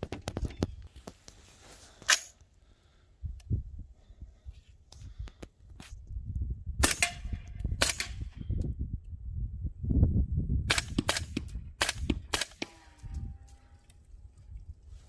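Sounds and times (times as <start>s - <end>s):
suppressed rifle shots: 6.8s - 8.3s, 10.7s - 12.8s.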